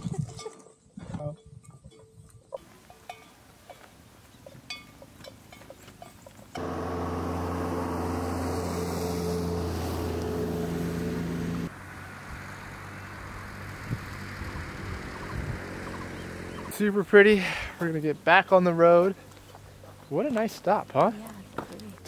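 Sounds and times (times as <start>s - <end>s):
motor engine running: 6.6s - 16.7s.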